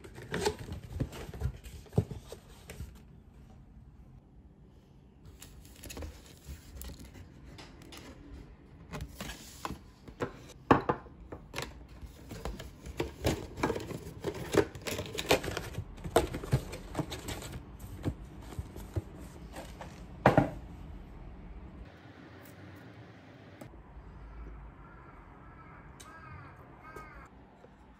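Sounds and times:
paper box rustling and crinkling: 0.0s - 3.1s, 5.3s - 8.2s, 11.5s - 20.1s.

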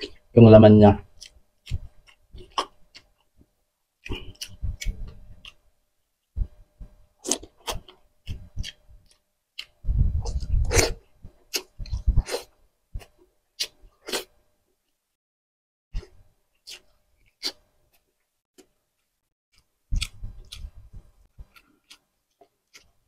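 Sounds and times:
chewing and lip smacks: 19.6s - 23.0s.

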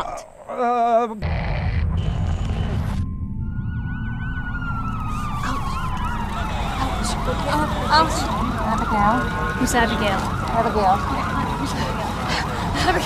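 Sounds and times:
continuous low rumble: 0.0s - 13.0s
burst of static noise: 1.2s - 3.1s
emergency siren warbling: 1.8s - 13.0s
steady falling tone: 2.6s - 9.7s.

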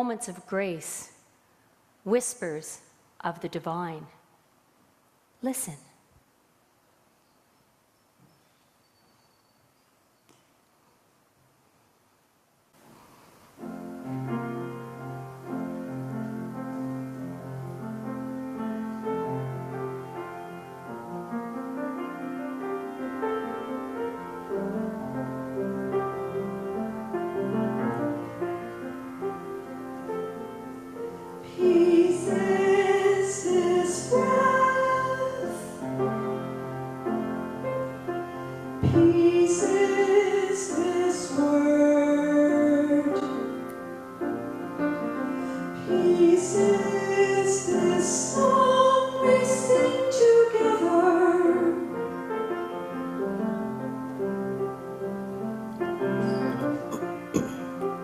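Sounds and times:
grand piano playing: 13.6s - 58.0s
woman singing: 31.4s - 36.2s, 38.8s - 43.6s, 45.8s - 52.2s.

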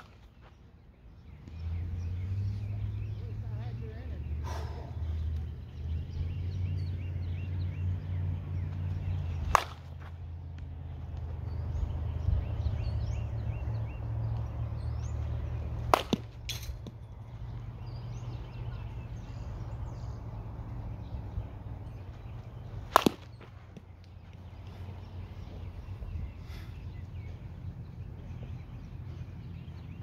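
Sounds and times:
birds chirping: 0.0s - 30.0s
steady low rumble: 0.0s - 30.0s
softball bat striking ball: 9.3s - 10.1s, 15.8s - 17.0s, 22.8s - 23.9s.

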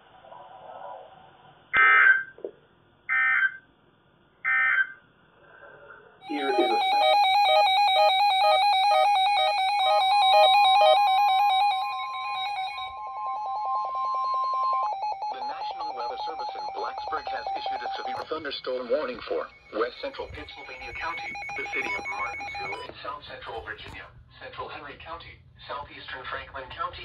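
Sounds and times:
person speaking: 6.2s - 7.4s, 15.3s - 24.0s
pulsing multi-tone alarm: 6.2s - 18.3s, 19.3s - 22.9s
data bursts: 6.2s - 22.9s
steady warning tone: 6.2s - 22.9s.

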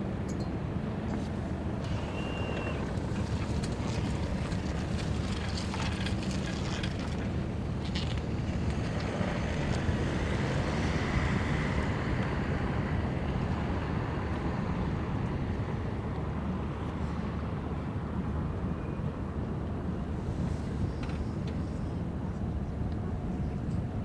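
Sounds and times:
low drone of ship: 0.0s - 24.0s
wind rumbling on microphone: 0.1s - 24.0s.

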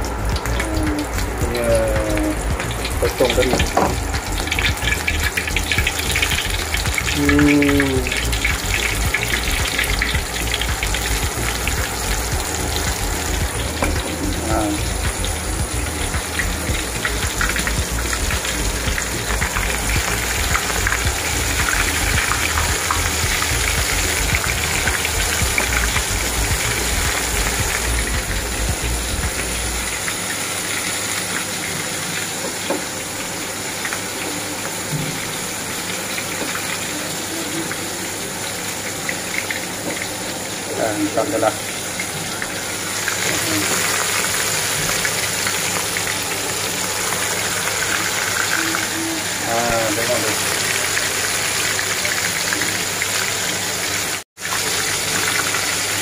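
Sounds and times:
low hum: 0.0s - 30.0s
deep-frying sizzle with crackling: 0.0s - 56.0s.

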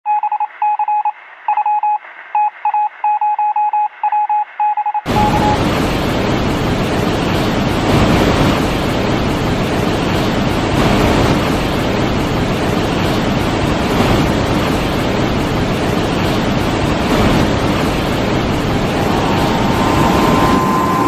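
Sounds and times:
electronic beeps: 0.1s - 5.6s
sea water churning: 5.1s - 21.0s
wind rushing: 16.4s - 21.0s.

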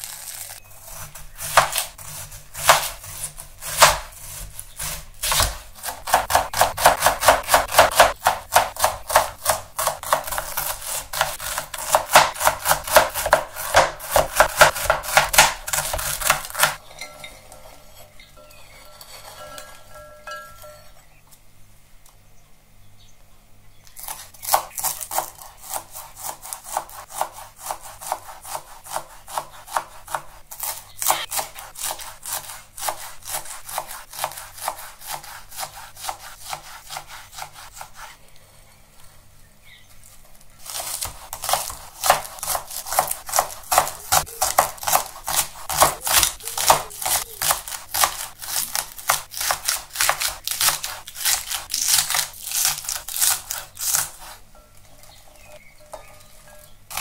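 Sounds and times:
knife chopping onions: 0.0s - 21.0s, 23.9s - 38.2s, 40.6s - 57.0s
knife slicing on cutting board: 0.8s - 16.8s.

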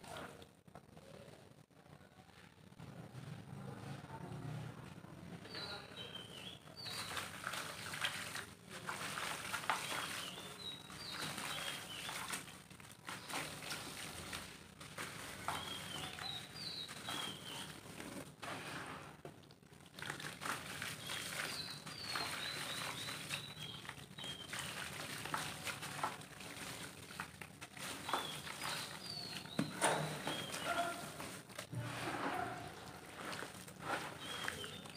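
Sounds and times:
crumbs falling into water: 6.9s - 18.3s, 19.3s - 31.7s
high bird chirps: 15.5s - 17.8s, 28.0s - 30.9s, 34.2s - 34.9s.

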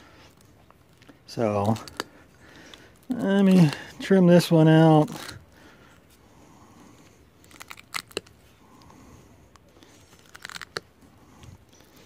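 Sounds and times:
rustling of wire: 0.0s - 6.2s, 6.9s - 12.0s.

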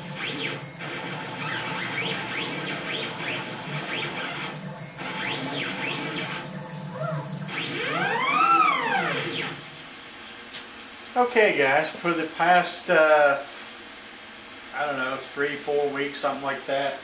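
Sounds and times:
stepper motors whining: 0.0s - 9.9s
steady low hum: 0.0s - 17.0s.

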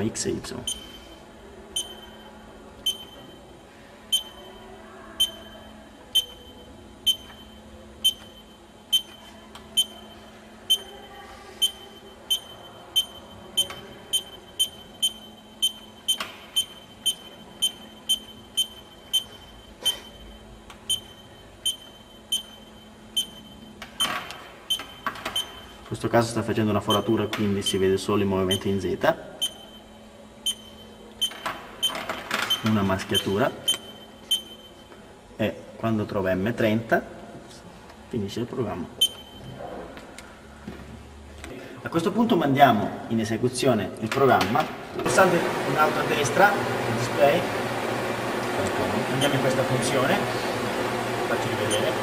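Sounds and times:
faint steady hum: 0.0s - 47.4s
short high keypad beeps: 1.8s - 3.4s, 4.1s - 4.5s, 5.2s - 11.0s, 11.6s - 25.8s.

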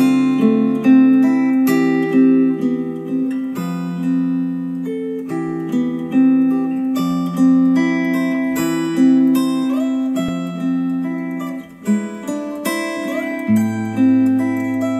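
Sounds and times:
acoustic guitar music: 0.0s - 14.9s.

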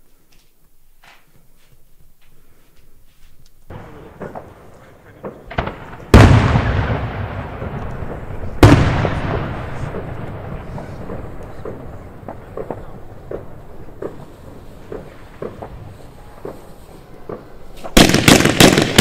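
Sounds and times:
faint crackles: 0.0s - 19.0s
fireworks soft pops: 0.1s - 19.0s
echoing rumble: 3.7s - 19.0s
fireworks shell bursts: 9.7s - 19.0s.

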